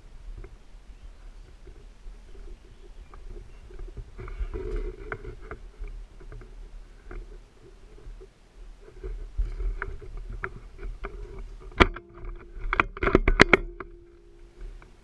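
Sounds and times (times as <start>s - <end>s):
rustling through dry grass: 0.0s - 15.0s
gear clicks and knocks: 8.9s - 15.0s.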